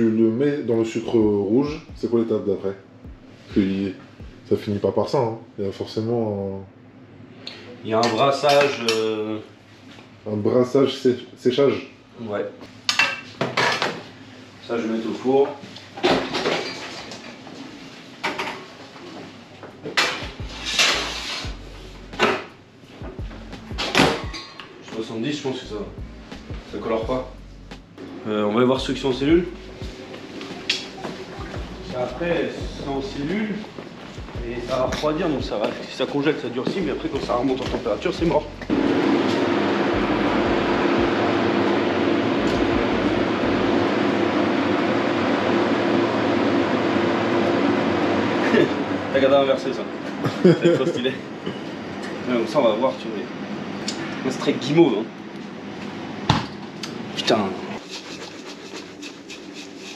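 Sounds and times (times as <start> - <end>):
blast chiller fans whirring: 0.0 - 18.6, 19.4 - 59.9
tray sliding scrape: 20.5 - 21.5.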